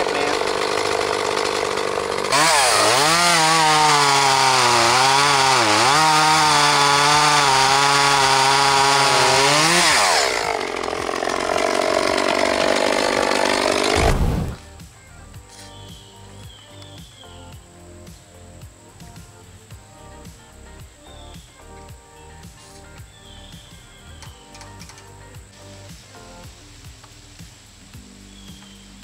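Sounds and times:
chainsaw cutting log: 0.0 - 14.8.

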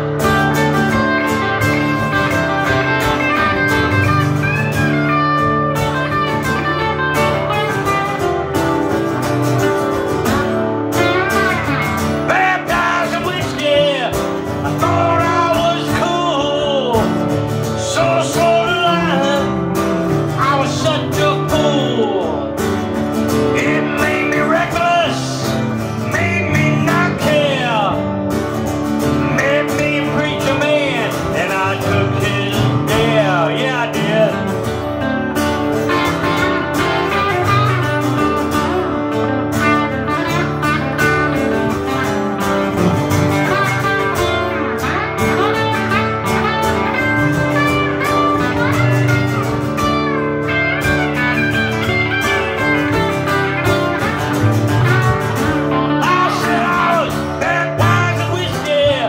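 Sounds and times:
electric guitar lead lines: 0.0 - 59.0
strummed acoustic guitar: 0.0 - 59.0
person singing: 11.0 - 28.2, 29.2 - 34.9, 55.7 - 59.0.

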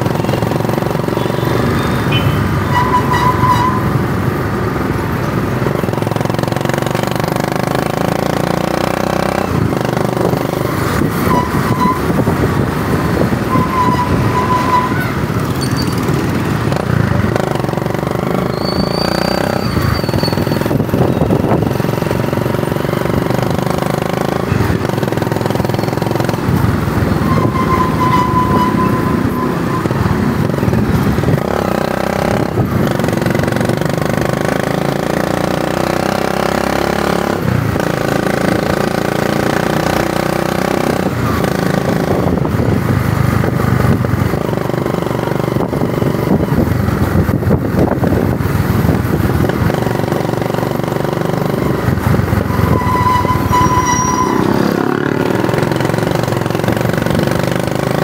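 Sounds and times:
motorcycle engine revving: 0.0 - 58.0
wind and road noise: 0.0 - 58.0
high steady tone: 27.2 - 30.2.

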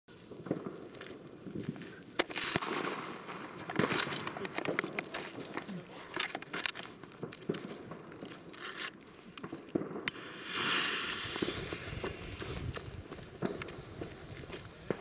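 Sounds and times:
crinkly handling noises: 1.0 - 10.0
fuse sparking: 10.0 - 14.8
gas lighter hissing: 10.1 - 14.1.

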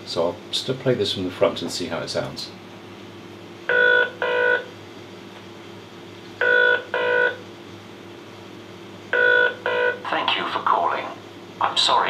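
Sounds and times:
telephone ringback tone: 6.4 - 7.4, 9.2 - 10.0.

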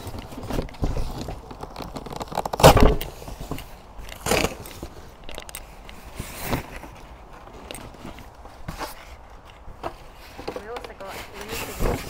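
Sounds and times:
cardboard box tearing: 0.0 - 5.1
small knocks and rustles: 0.0 - 12.0.

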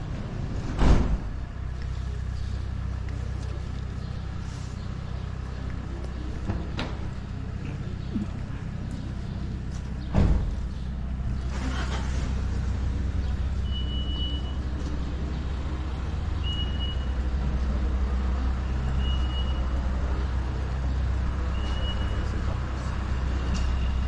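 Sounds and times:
vehicle engine running: 0.0 - 24.0
loud thump: 0.7 - 1.3, 10.1 - 10.7.

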